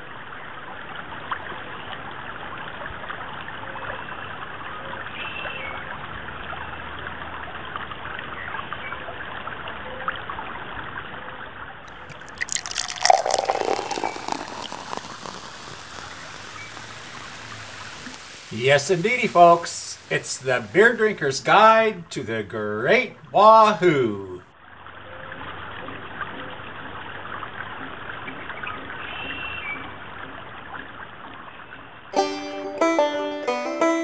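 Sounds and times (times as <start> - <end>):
creek water rushing: 13.8 - 24.0.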